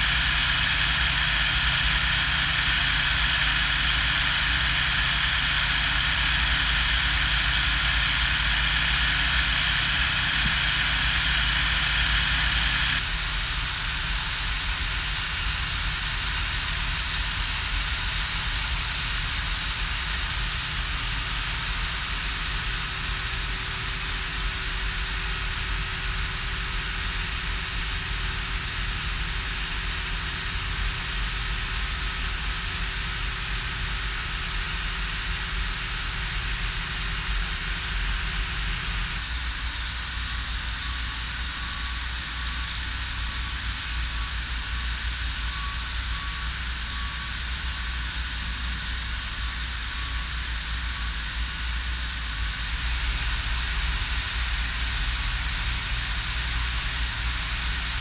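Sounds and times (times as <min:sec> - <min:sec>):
hiss: 0:00.0 - 0:15.3, 0:38.5 - 0:58.0
film projector whirring: 0:00.0 - 0:58.0.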